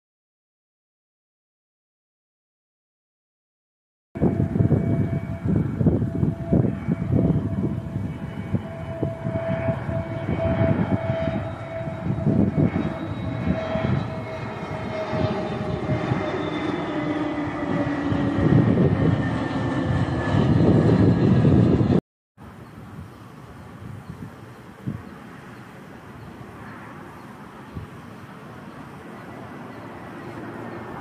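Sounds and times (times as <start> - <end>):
gusty low rumble: 4.2 - 22.0
jet engines whining: 4.2 - 22.0, 23.6 - 31.0.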